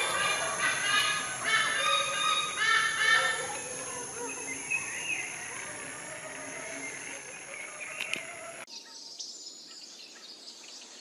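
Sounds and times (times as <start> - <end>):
eagle calling: 0.0 - 8.6.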